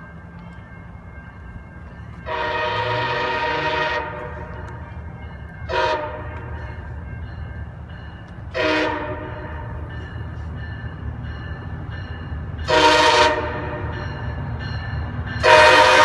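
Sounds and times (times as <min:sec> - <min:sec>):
train horn blasts: 0:02.2 - 0:04.7, 0:05.7 - 0:06.6, 0:08.5 - 0:09.9, 0:12.6 - 0:14.0, 0:15.4 - 0:16.0.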